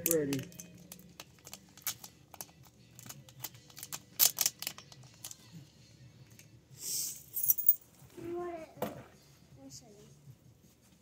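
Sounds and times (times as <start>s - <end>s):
tape clicking and crackling: 0.0s - 5.5s.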